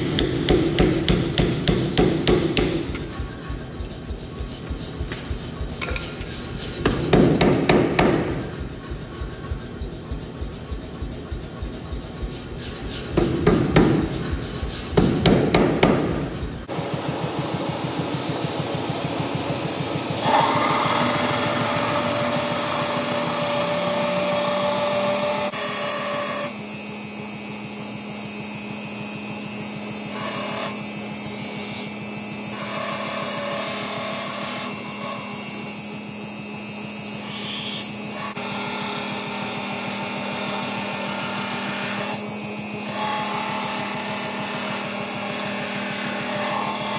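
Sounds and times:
power hammer striking steel: 0:00.0 - 0:03.4, 0:05.8 - 0:08.8, 0:13.1 - 0:25.5
belt grinder humming: 0:16.7 - 0:26.6.

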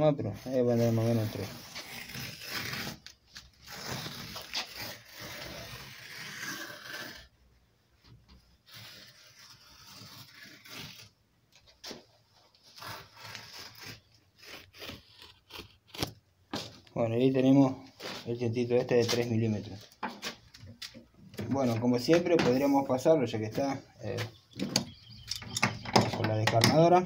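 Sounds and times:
leather lace cutter scraping: 0:00.8 - 0:07.3, 0:08.6 - 0:11.1, 0:12.6 - 0:16.2.

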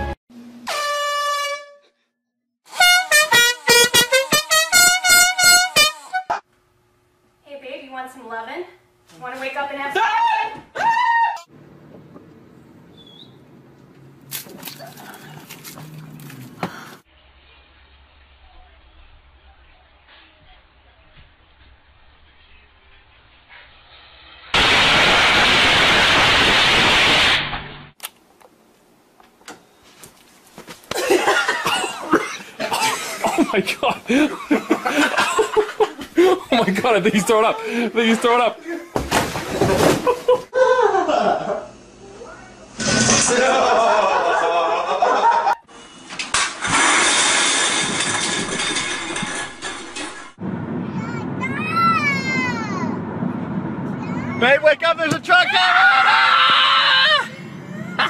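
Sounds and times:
air horn blast: 0:00.0 - 0:02.0, 0:02.7 - 0:06.4
short air horn honks: 0:00.6 - 0:02.0, 0:02.7 - 0:06.4.

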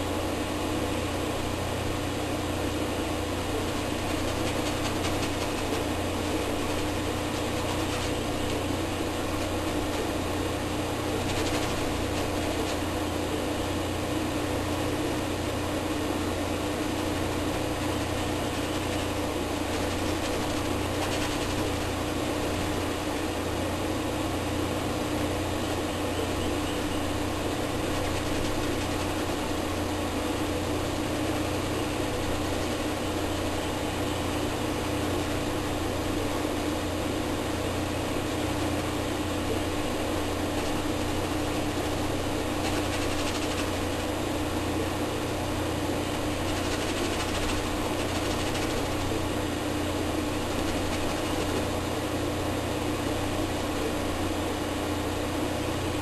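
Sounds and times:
constant hiss: 0:00.0 - 0:56.0
steady low hum: 0:00.0 - 0:56.0.

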